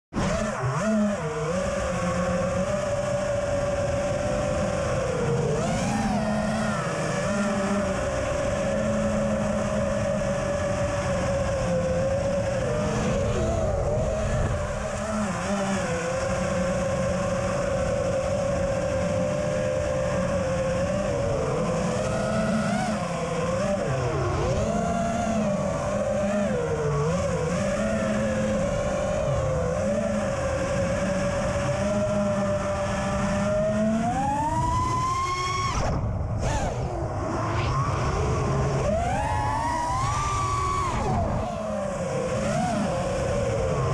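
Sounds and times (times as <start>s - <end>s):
drone motors whining: 0.2s - 43.9s.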